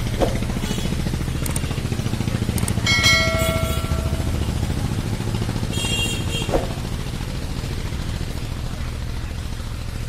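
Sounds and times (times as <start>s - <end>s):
low engine drone: 0.0s - 10.0s
bright bell chime: 2.8s - 4.8s.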